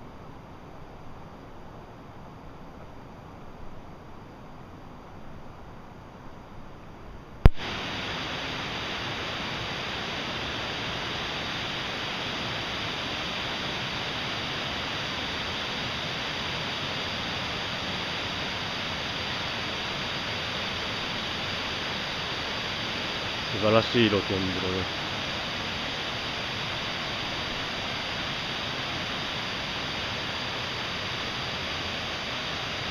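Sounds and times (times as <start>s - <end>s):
rush of flowing water: 7.4s - 32.9s.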